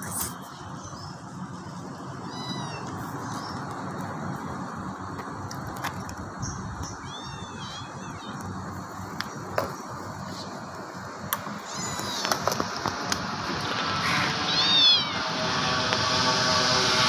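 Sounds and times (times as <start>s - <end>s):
steady background noise: 0.0s - 17.0s
cat meowing: 2.2s - 3.6s, 7.0s - 8.5s, 11.6s - 12.3s, 14.1s - 15.3s.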